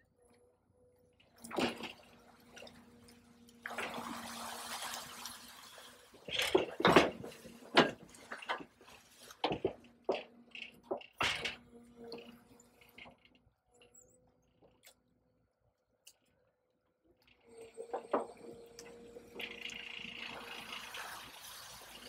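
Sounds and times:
water splashing and dripping: 1.3 - 10.2, 20.3 - 22.0
water gushing: 3.6 - 8.5, 19.5 - 22.0.

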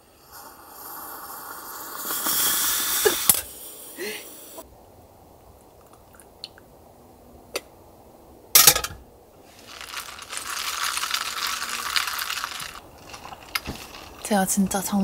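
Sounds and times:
metal pot clank on stove: 8.6 - 9.0
ice cubes clinking in cup: 9.6 - 14.3.

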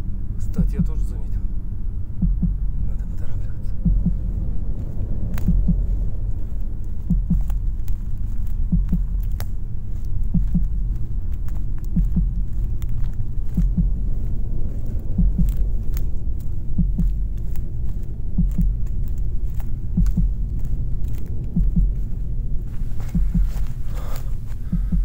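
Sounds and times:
low rumbling drone: 0.0 - 25.0
heartbeat double thump: 0.6 - 1.1, 2.1 - 2.9, 3.8 - 6.3, 6.9 - 8.0, 8.6 - 9.5, 10.2 - 11.1, 11.8 - 19.1, 19.9 - 20.8, 21.4 - 22.4, 23.0 - 23.8, 24.6 - 25.0.

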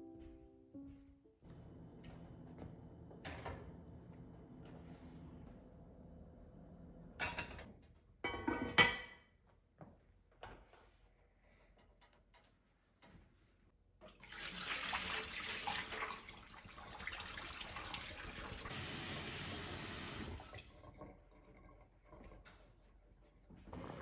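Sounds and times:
water splashing in sink: 14.0 - 22.8.

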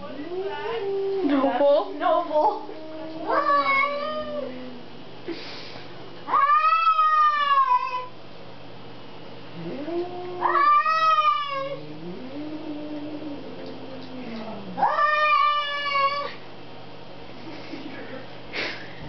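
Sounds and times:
angry cat yowling: 2.4 - 4.9, 6.3 - 8.1, 9.6 - 16.4.

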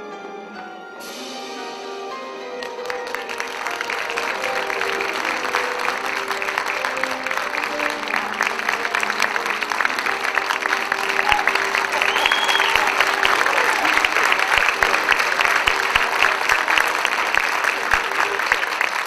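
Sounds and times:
audience applauding: 2.6 - 19.0
high whistle from crowd: 11.1 - 14.5.

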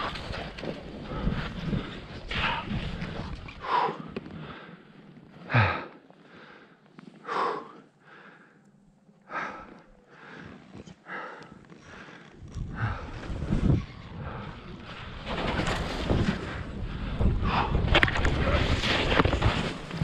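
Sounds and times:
person breathing hard: 1.1 - 15.2, 16.4 - 18.0.

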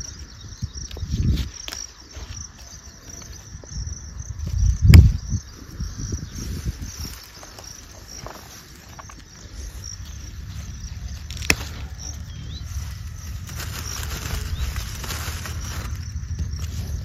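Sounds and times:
insects chirring: 0.0 - 17.0
pod snapping off stem: 11.3 - 11.8.

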